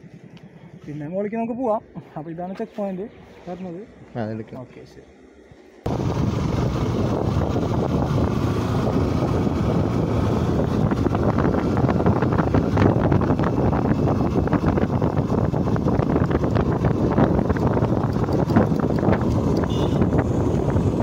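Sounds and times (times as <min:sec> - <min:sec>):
motorcycle engine running: 0:00.0 - 0:02.2, 0:05.8 - 0:21.0
wind rushing over microphone: 0:05.9 - 0:21.0.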